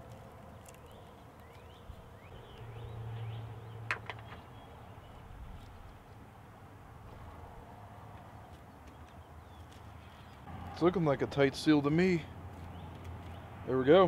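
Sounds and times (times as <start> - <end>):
small birds chirping: 0.0 - 6.5, 8.1 - 10.5, 11.8 - 14.0.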